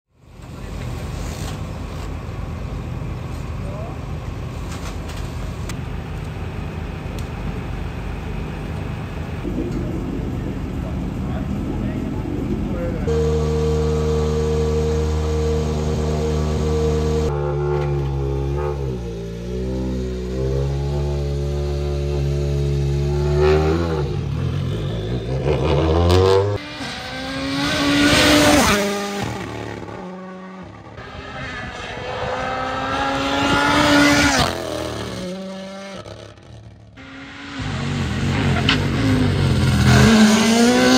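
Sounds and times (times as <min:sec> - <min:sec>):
rally car engine passing by: 0:09.4 - 0:40.9.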